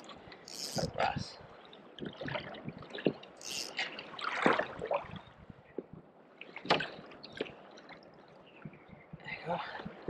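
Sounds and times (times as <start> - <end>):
water splashing and dripping: 1.7 - 5.2.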